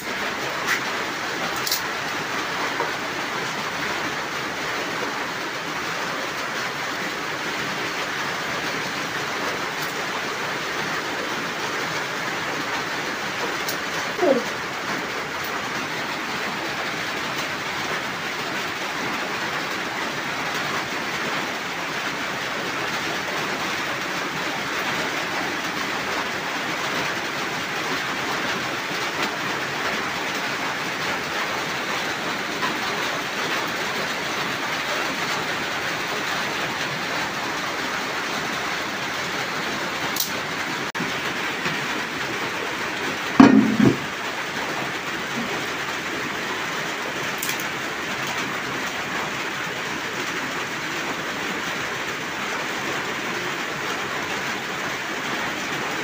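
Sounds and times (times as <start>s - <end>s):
steady rain falling: 0.0s - 56.0s
loud knocks: 43.4s - 44.1s.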